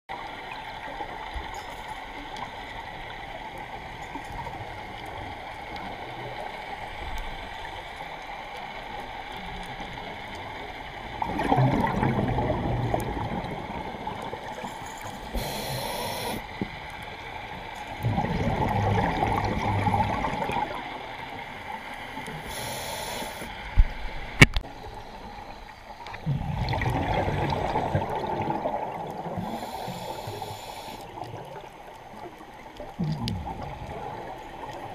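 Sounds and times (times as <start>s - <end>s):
regulator inhalation hiss: 15.2s - 16.6s, 22.4s - 23.6s, 29.4s - 31.2s
regulator bubbling exhalations: 26.2s - 30.6s.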